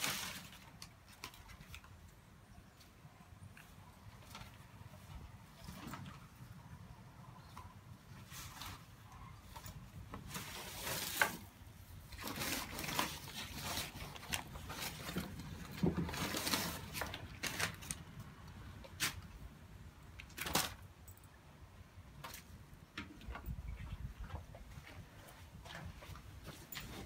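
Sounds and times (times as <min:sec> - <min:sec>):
newspaper rustling and crinkling: 0:00.0 - 0:02.2, 0:08.1 - 0:19.4.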